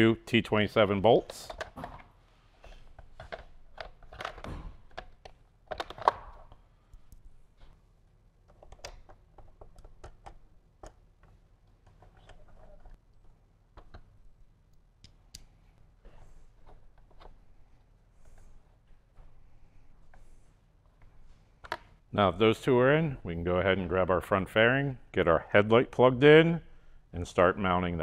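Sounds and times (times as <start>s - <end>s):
plastic parts knocking and clattering: 1.2s - 6.6s.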